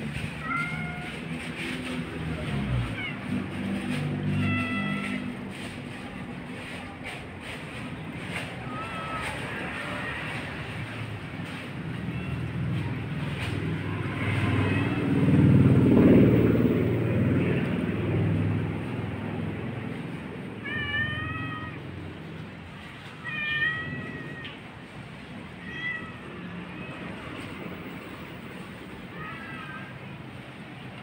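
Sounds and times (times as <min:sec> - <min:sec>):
cat meowing: 0:00.2 - 0:01.3, 0:02.8 - 0:03.3, 0:04.2 - 0:05.4, 0:08.4 - 0:10.4, 0:20.5 - 0:22.0, 0:23.1 - 0:24.7, 0:25.6 - 0:27.6, 0:29.1 - 0:29.9.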